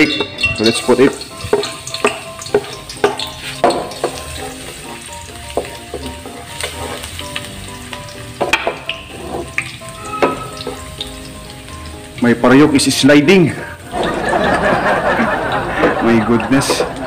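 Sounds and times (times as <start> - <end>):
garlic sizzling in hot oil: 0.0 - 14.8, 15.5 - 17.0
wooden spatula scraping a wok: 1.4 - 4.8, 5.5 - 7.2, 8.9 - 11.0.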